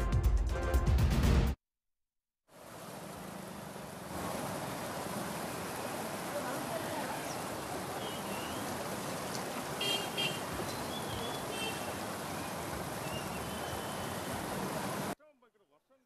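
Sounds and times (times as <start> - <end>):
floodwater rushing: 2.5 - 15.2.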